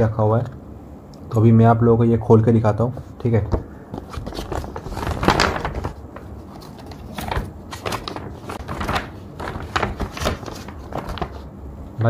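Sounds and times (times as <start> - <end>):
paper rustling and crinkling: 3.9 - 11.5.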